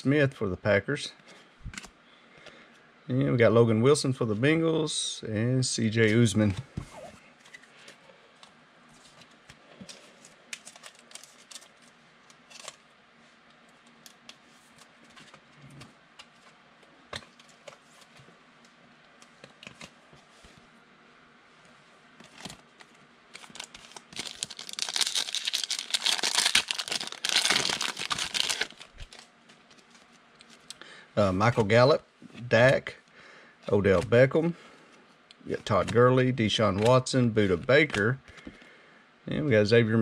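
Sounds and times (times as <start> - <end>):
plastic wrapper crinkling: 10.5 - 12.8, 22.3 - 30.7.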